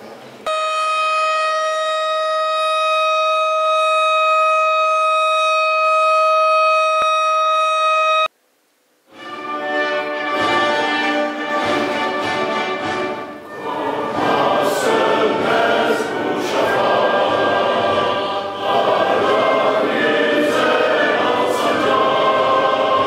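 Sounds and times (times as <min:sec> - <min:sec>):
steady siren tone: 0:00.5 - 0:08.3
choir and orchestra music: 0:09.1 - 0:23.0.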